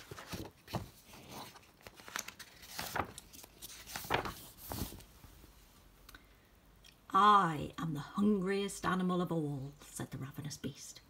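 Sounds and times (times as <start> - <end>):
book pages turning: 0.0 - 5.1.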